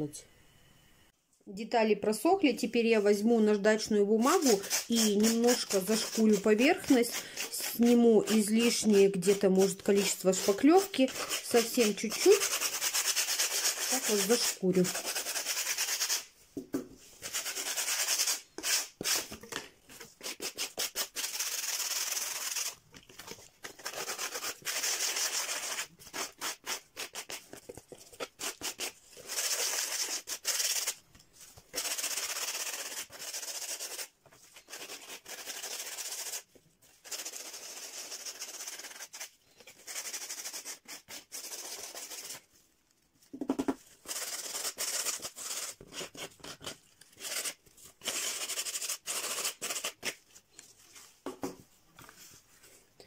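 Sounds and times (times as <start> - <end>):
sandpaper rubbing: 4.2 - 16.3, 17.2 - 19.3, 20.1 - 22.8, 23.6 - 31.0, 31.7 - 42.4, 43.6 - 50.2.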